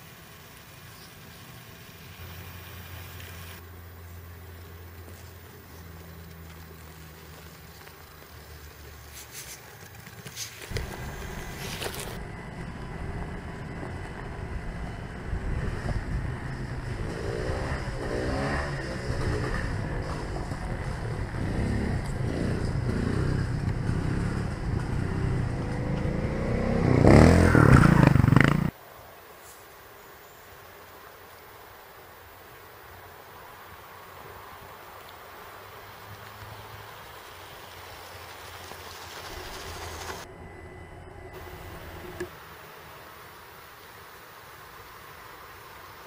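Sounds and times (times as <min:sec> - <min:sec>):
tyres scraping on stones: 0:09.0 - 0:12.2.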